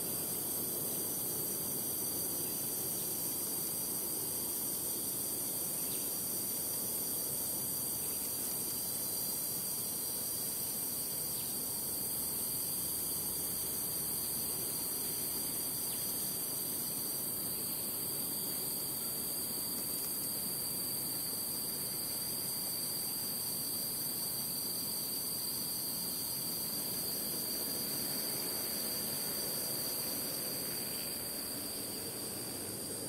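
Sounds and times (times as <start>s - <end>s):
high-pitched insect chorus: 0.0s - 33.0s.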